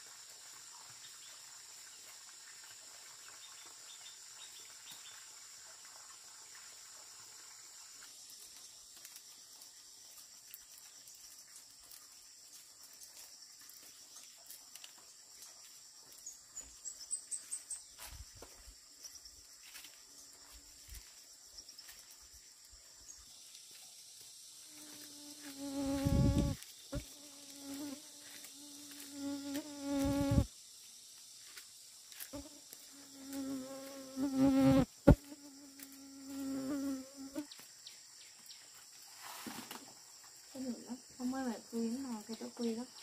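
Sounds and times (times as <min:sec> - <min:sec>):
insects chirring: 0:00.0 - 0:43.0
flying insect buzzing: 0:24.5 - 0:30.5, 0:32.2 - 0:37.6.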